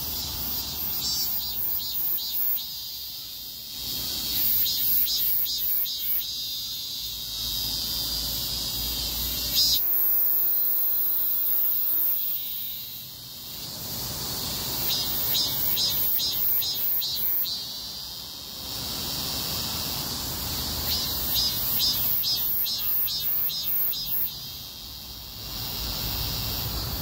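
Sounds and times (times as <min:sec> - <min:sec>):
cicadas buzzing: 0:00.0 - 0:27.0.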